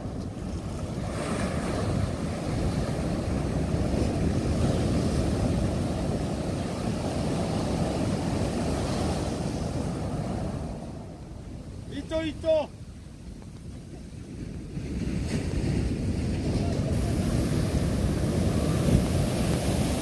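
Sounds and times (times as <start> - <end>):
wind buffeting microphone: 0.0 - 11.9, 12.7 - 20.0
surf waves roaring: 0.0 - 20.0.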